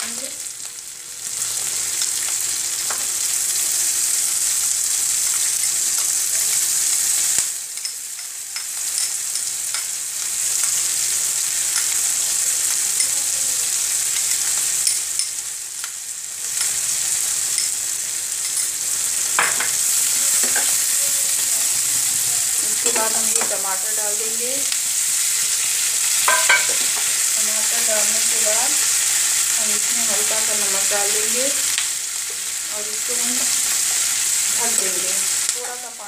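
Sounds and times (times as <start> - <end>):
food sizzling in hot oil: 0.0 - 36.0
spatula clattering: 26.2 - 27.1.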